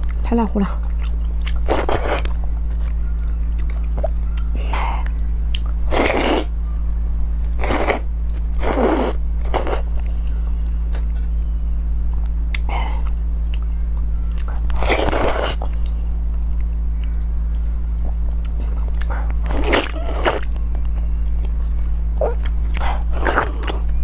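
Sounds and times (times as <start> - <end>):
low hum: 0.0 - 24.0
chewing: 0.8 - 6.2, 10.9 - 17.3, 18.0 - 24.0.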